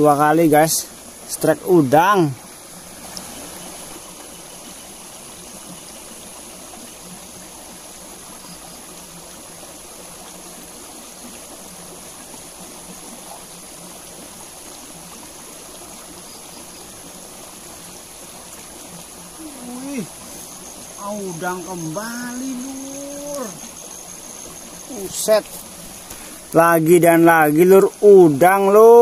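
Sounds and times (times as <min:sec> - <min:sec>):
stream trickling over rock: 0:00.0 - 0:29.0.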